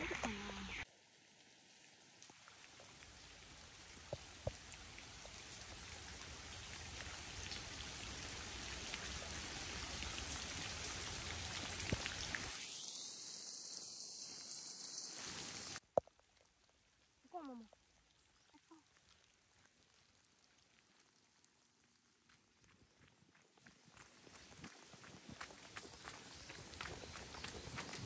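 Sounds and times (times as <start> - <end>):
light rain on leaves and road: 0.0 - 28.0
single raindrops ticking: 2.2 - 12.8.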